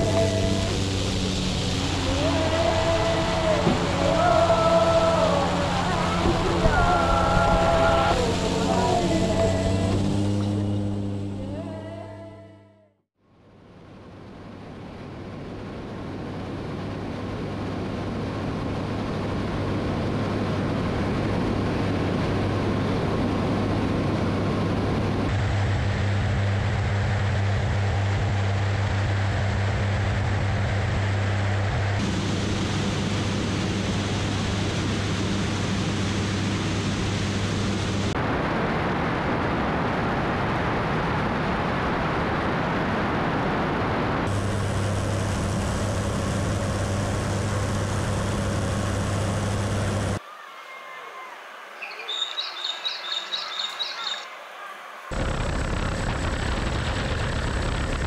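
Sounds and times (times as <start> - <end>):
rushing air: 0.0 - 11.4, 14.8 - 50.3, 54.9 - 58.0
propeller plane engine drone: 0.0 - 50.3, 55.1 - 58.0.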